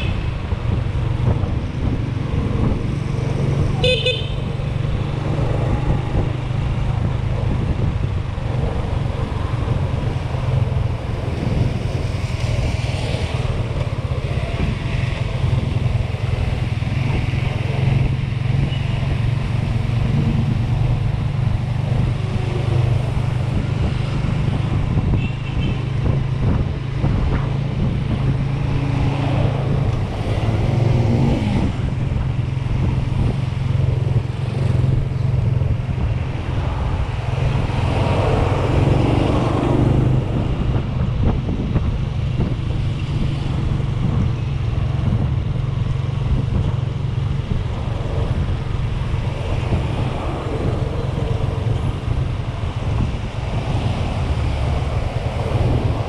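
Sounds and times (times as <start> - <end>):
street traffic: 0.0 - 56.0
bus passing: 25.8 - 56.0.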